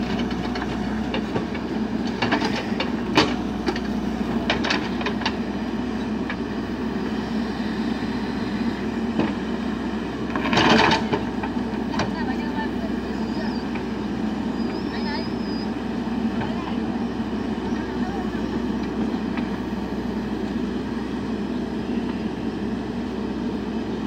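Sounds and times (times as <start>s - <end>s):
diesel engine running: 0.0s - 24.0s.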